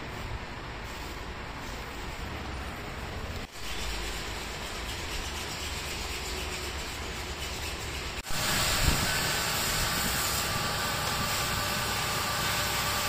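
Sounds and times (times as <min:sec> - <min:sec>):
pressure washer running: 0:08.2 - 0:13.0.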